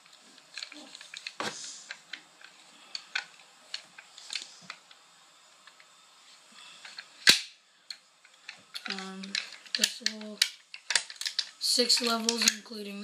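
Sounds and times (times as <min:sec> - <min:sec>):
loud sharp snap: 0:07.2 - 0:07.6.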